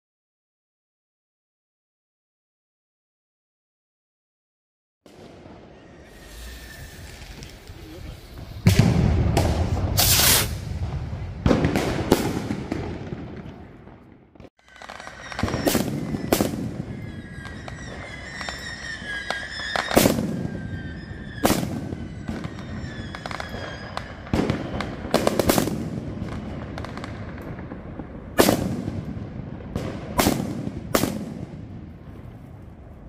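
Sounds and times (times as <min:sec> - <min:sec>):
firecrackers banging: 0:05.1 - 0:33.0
high thin whistle: 0:05.6 - 0:08.2, 0:14.6 - 0:24.9.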